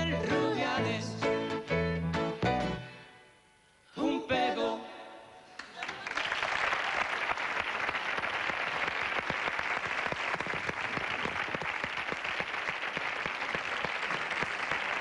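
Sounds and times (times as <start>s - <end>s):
audience applause: 5.7s - 15.0s.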